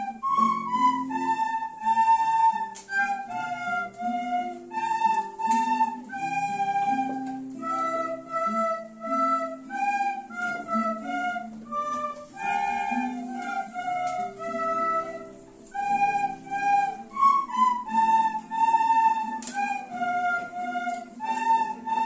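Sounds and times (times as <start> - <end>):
children playing recorders: 0.0 - 22.0
low accompanying notes: 0.0 - 22.0.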